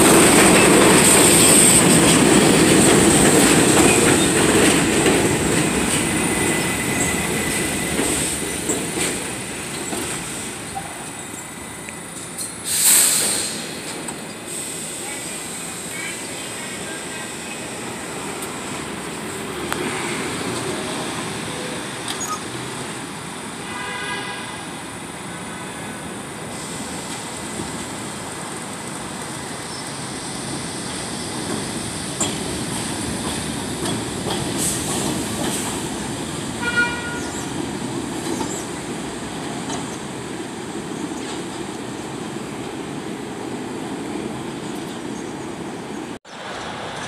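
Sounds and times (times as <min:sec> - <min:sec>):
subway train rumbling: 0:00.0 - 0:47.0
train horn toots: 0:23.6 - 0:24.8, 0:36.6 - 0:37.4.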